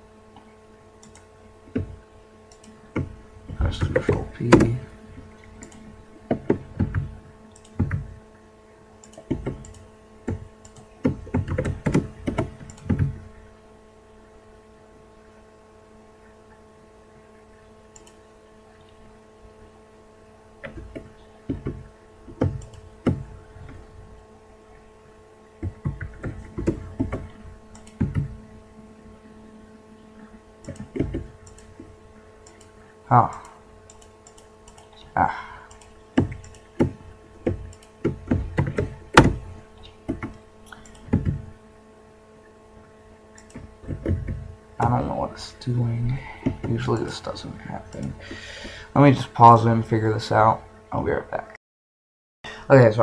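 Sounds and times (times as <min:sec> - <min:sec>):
electrical hum: 0:00.0 - 0:51.6, 0:52.5 - 0:53.0
keyboard and mouse clicking: 0:01.0 - 0:04.8, 0:05.6 - 0:08.1, 0:09.0 - 0:13.2, 0:17.9 - 0:18.2, 0:20.6 - 0:23.9, 0:25.6 - 0:28.4, 0:30.6 - 0:35.1, 0:35.7 - 0:41.4, 0:43.4 - 0:44.4, 0:47.9 - 0:48.2.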